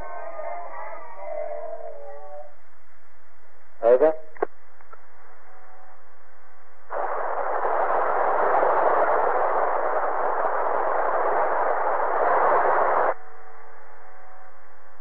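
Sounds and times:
radio static hiss: 0.0s - 0.8s, 3.3s - 13.2s.

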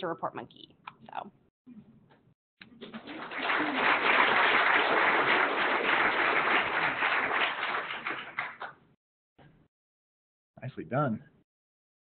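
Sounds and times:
audience applauding: 2.6s - 8.8s.

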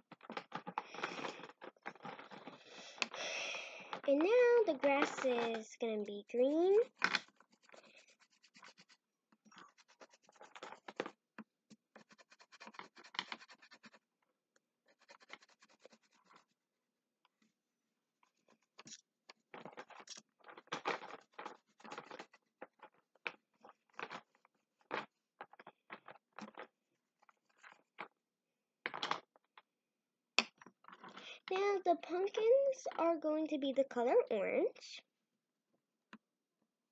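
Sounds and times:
crayon scribbling on paper: 6.8s - 11.0s, 11.9s - 14.0s, 14.9s - 16.5s.

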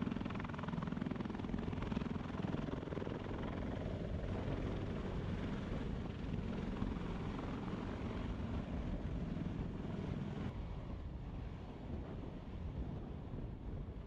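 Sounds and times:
helicopter rotor rumbling: 0.0s - 10.5s.

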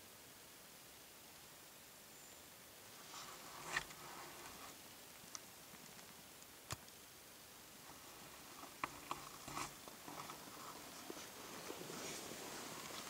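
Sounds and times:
light rustles: 3.0s - 4.8s, 7.8s - 13.0s
faint sharp clicks: 5.2s - 7.0s.

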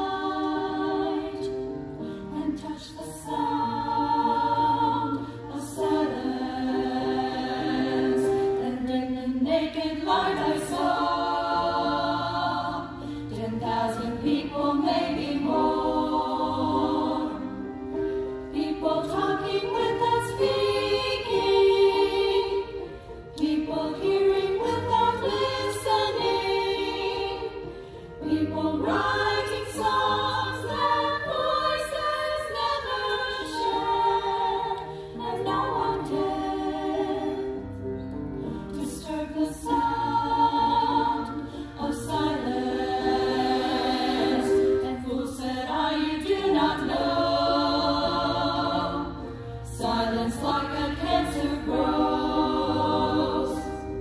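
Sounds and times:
choir singing: 0.0s - 54.0s.

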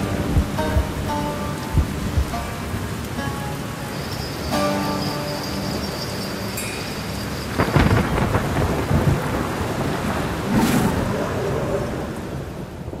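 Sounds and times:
heavy rain: 0.0s - 13.0s
thunder crack and rumble: 7.5s - 13.0s.

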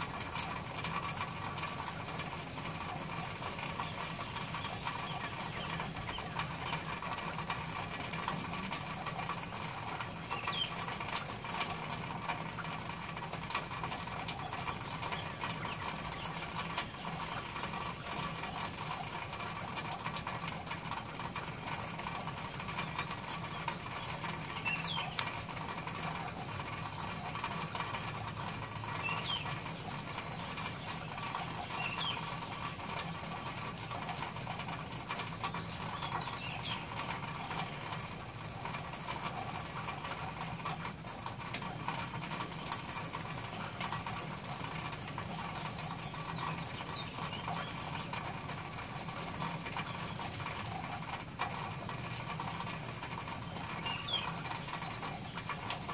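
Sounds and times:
small birds chirping: 0.0s - 55.9s
high bird trill: 35.7s - 40.6s, 42.4s - 52.5s.

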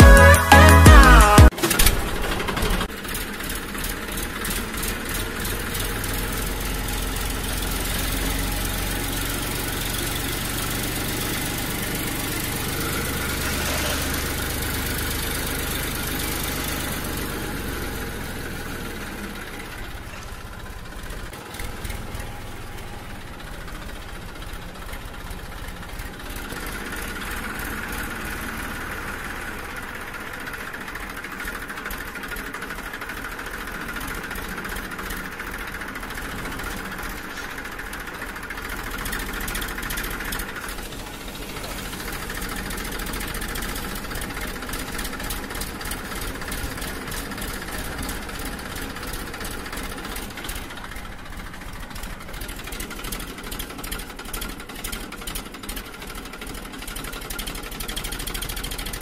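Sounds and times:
small electric motors whirring: 13.0s - 14.4s.

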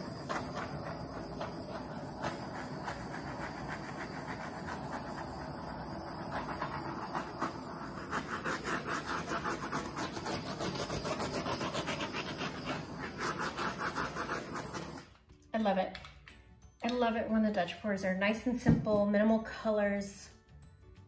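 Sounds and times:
torch flame hissing: 0.0s - 15.1s.

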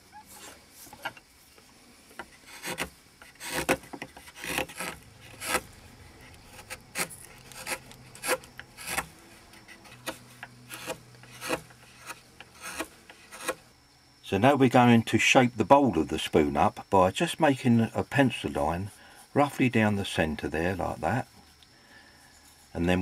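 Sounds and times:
chisel scraping wood: 2.1s - 13.7s.

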